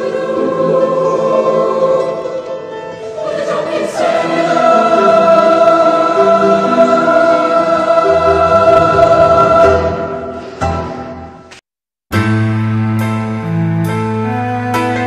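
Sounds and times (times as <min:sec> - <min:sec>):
song with choir singing: 0:00.0 - 0:11.5.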